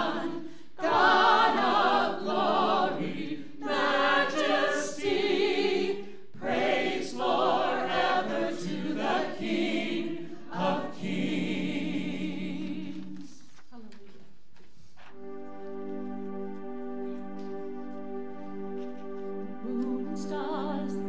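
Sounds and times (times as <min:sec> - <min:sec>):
group singing into microphones: 0:00.0 - 0:13.4, 0:19.6 - 0:21.0.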